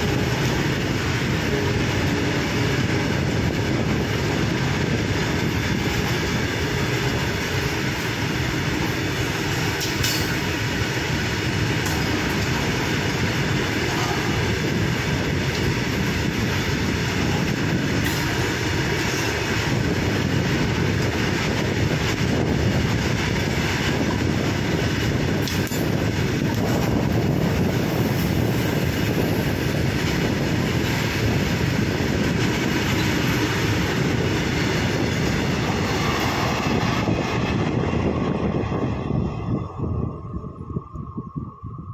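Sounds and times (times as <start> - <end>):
train wheels rumbling on rails: 0.0 - 41.9
sharp rail clicks: 7.1 - 10.8, 11.6 - 14.6, 24.8 - 27.2.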